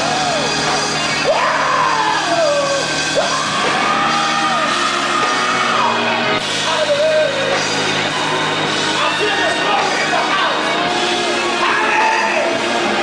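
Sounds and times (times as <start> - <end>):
backing music: 0.0 - 13.0
man singing and yelling: 6.6 - 7.7, 11.5 - 12.6.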